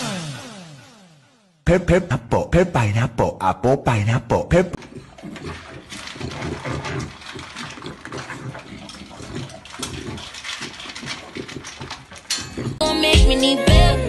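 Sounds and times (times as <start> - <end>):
puppy snuffling: 4.8 - 12.8
puppy crunching dry kibble: 4.8 - 12.9.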